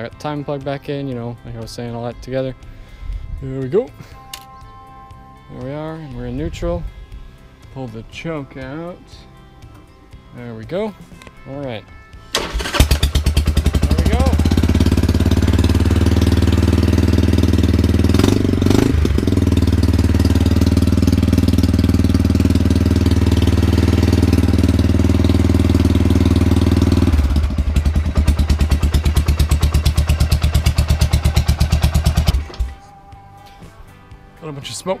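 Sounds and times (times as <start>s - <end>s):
motorcycle engine running: 12.4s - 32.8s.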